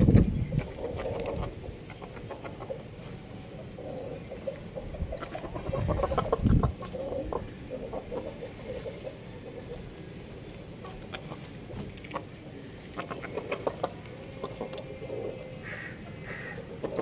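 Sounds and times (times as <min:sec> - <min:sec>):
chickens clucking softly: 0:00.0 - 0:17.0
beaks tapping on concrete: 0:03.8 - 0:17.0.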